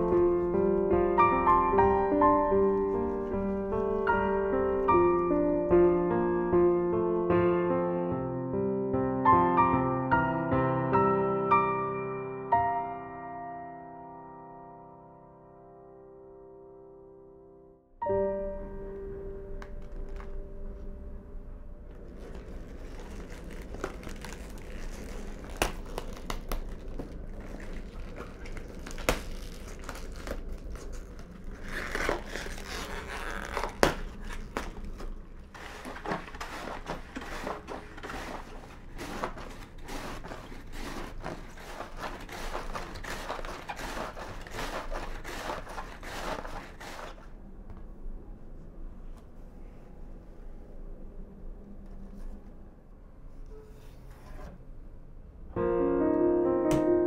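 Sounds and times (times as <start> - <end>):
cabbage leaves crinkling: 0.0 - 6.3, 21.9 - 47.3
piano note: 0.0 - 27.1, 55.5 - 57.0
cabbage shredding on slicer: 22.9 - 47.3.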